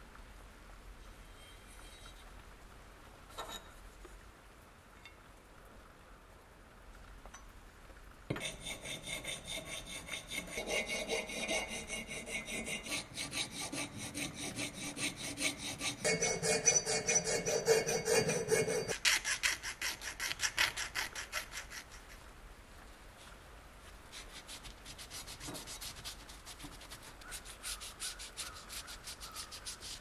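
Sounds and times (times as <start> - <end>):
hand file scraping metal: 8.3 - 22.0, 24.2 - 30.0.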